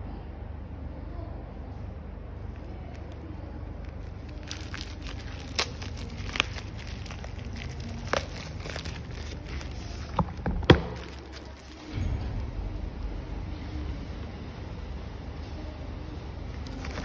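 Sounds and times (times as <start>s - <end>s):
sharp crackles: 2.5s - 10.2s
plastic mailer bag crinkling: 2.5s - 12.0s, 16.5s - 17.0s.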